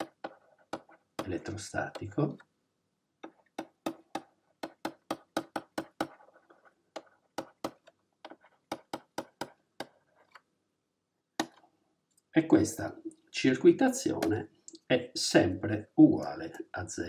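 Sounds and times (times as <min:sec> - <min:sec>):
stylus tapping on drawing tablet: 0:00.0 - 0:02.5, 0:03.2 - 0:10.4, 0:11.4 - 0:11.7.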